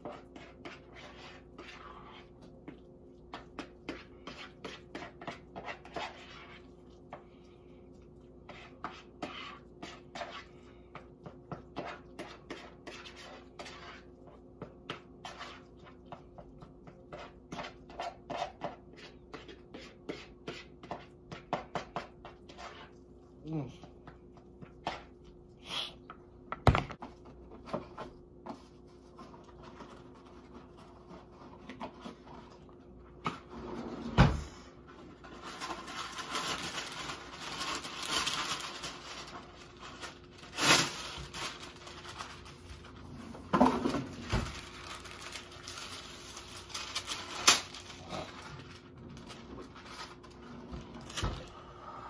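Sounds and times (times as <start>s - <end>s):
knocks on countertop: 26.5s - 27.0s.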